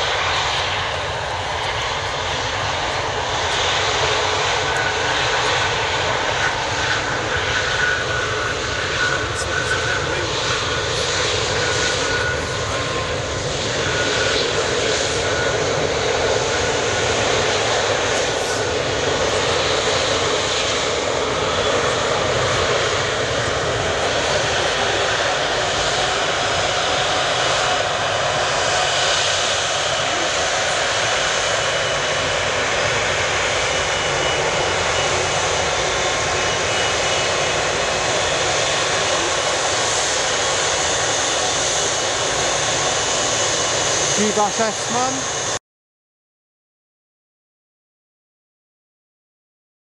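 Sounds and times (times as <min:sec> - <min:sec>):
jet engines running: 0:00.0 - 0:45.6.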